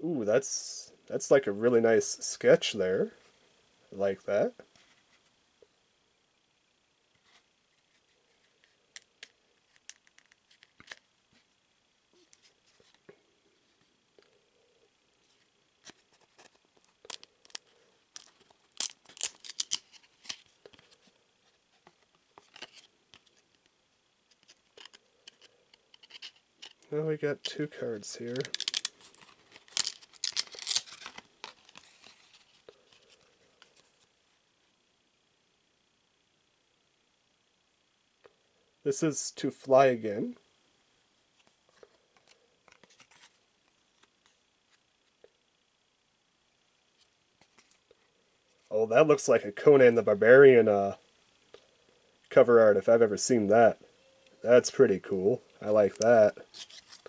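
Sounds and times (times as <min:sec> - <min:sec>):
trading cards rustling and scraping: 0:07.2 - 0:11.5, 0:12.2 - 0:14.4, 0:15.2 - 0:23.6, 0:24.2 - 0:34.2, 0:41.4 - 0:44.9, 0:54.8 - 0:57.0
trading cards clicking and snapping: 0:18.2 - 0:20.8.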